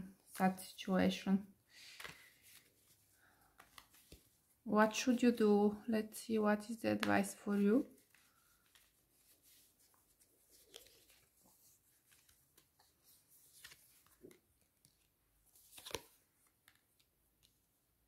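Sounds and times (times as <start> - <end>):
cards rustling and clicking: 1.8 - 4.4, 7.0 - 17.6.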